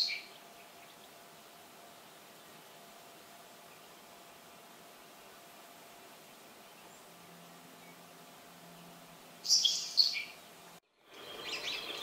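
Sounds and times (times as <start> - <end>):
faint recording hiss: 0.0 - 12.0
sparrow raspy hissing trill: 9.4 - 10.3.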